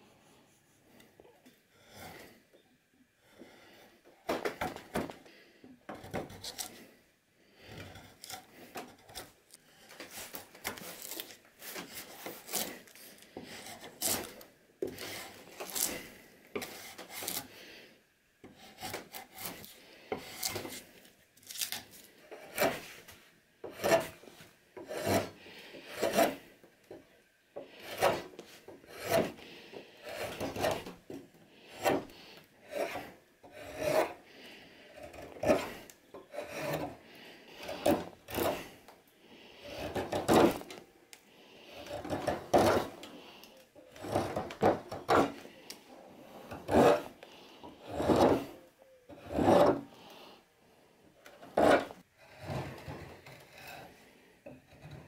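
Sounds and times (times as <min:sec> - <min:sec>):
blades scraping wood: 0:07.6 - 0:17.5, 0:18.5 - 0:27.0, 0:27.6 - 0:38.8, 0:39.4 - 0:40.8, 0:41.5 - 0:48.6, 0:49.2 - 0:50.1, 0:51.3 - 0:55.0.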